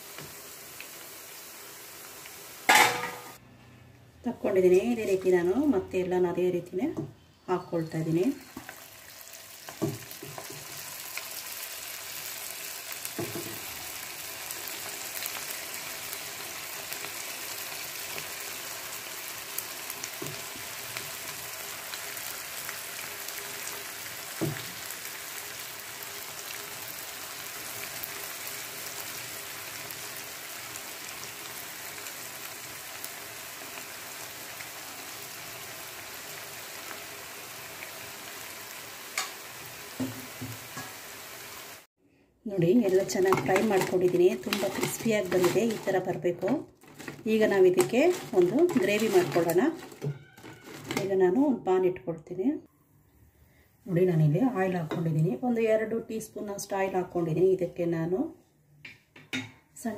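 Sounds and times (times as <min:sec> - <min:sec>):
oil sizzling and bubbling: 0:00.0 - 0:03.4, 0:07.8 - 0:41.9, 0:42.6 - 0:51.2.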